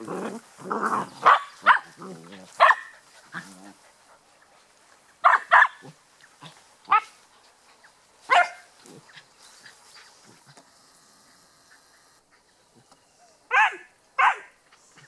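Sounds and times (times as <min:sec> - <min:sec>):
puppies barking: 0:00.9 - 0:03.5, 0:05.2 - 0:07.2, 0:08.3 - 0:09.3, 0:13.5 - 0:14.6.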